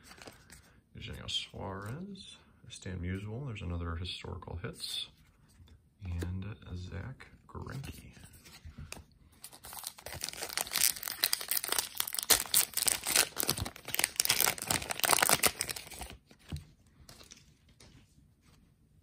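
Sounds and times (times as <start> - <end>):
wrapper crinkling and tearing: 9.5 - 16.2.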